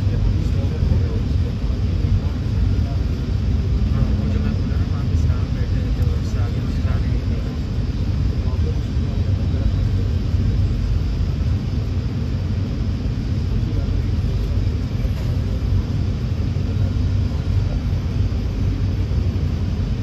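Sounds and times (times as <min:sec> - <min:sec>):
train rumbling on track: 0:00.0 - 0:10.8.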